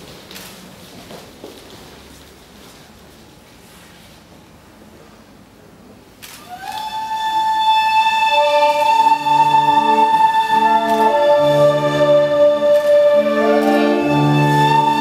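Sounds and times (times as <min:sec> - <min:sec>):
slow sustained music: 0:06.9 - 0:15.0.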